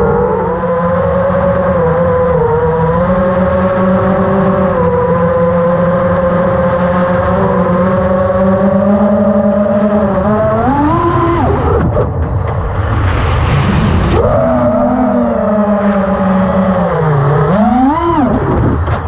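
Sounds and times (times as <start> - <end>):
drone motors buzzing: 0.0 - 19.0.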